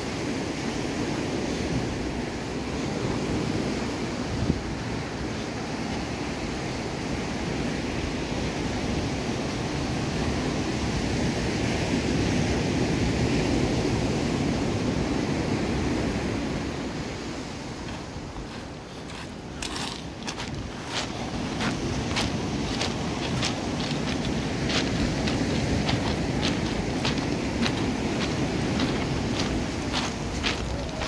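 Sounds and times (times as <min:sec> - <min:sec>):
footsteps on beach stones: 0:17.3 - 0:31.0
surf breaking on cobbles: 0:19.6 - 0:31.0.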